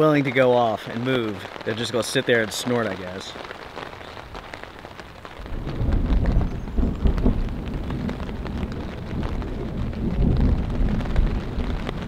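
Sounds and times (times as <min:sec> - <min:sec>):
rain pattering on a tarp: 0:00.0 - 0:12.0
thunder rumbling: 0:04.2 - 0:12.0.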